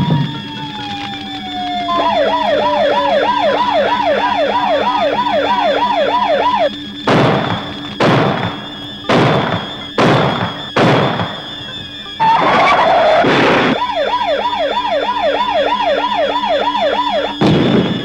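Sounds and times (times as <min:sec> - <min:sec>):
siren warbling: 0:00.0 - 0:18.0
heavy thuds: 0:07.1 - 0:11.5.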